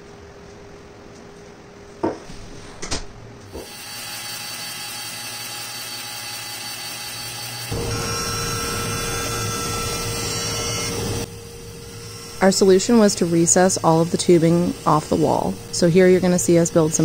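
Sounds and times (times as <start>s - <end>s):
bandsaw cutting plywood: 3.6s - 17.0s.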